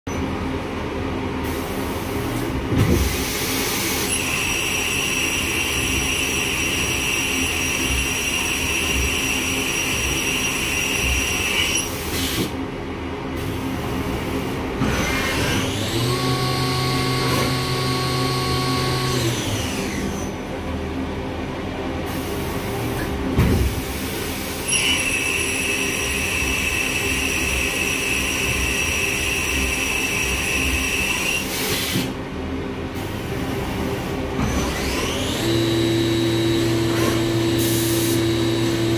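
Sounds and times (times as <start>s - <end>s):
machine hum: 13.9s - 24.6s.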